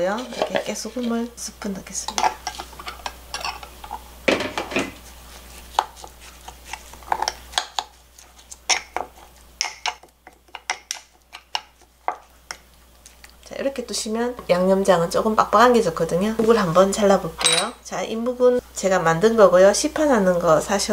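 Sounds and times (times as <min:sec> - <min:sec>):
spoon clinking in ceramic bowl: 0:17.4 - 0:17.8.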